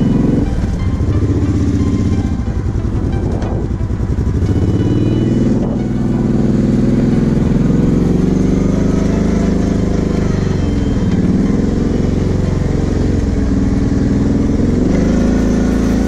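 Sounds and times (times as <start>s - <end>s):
quad engine revving: 0.0s - 16.0s.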